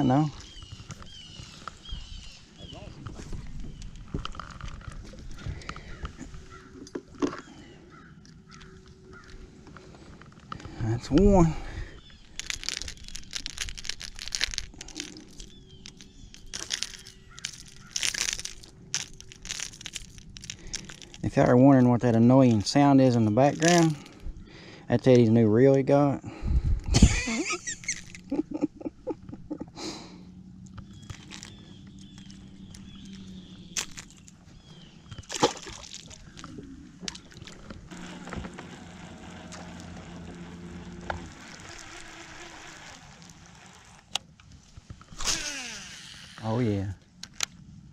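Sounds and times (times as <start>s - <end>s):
steady low hum: 26.1s - 47.9s
fishing reel clicking: 37.9s - 44.2s, 45.2s - 46.5s.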